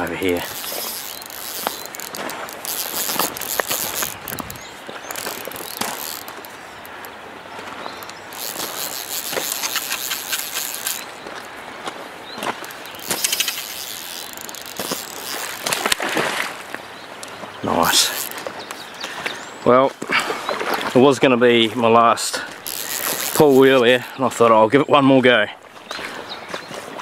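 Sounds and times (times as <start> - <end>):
fly reel ratcheting clicks: 0.0 - 7.2, 7.9 - 11.5, 12.4 - 16.0, 17.2 - 18.5, 22.5 - 24.2.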